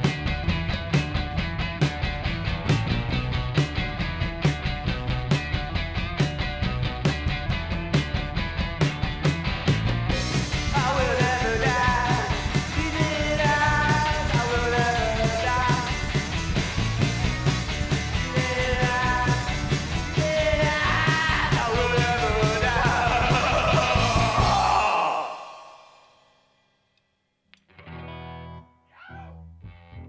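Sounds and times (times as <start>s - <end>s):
electric bass: 0.0s - 25.6s, 27.6s - 28.7s, 29.3s - 30.0s
distorted electric guitar: 0.0s - 26.4s, 27.6s - 28.8s
drum kit: 0.0s - 26.4s
person singing lead vocal: 10.6s - 16.1s, 18.2s - 26.1s.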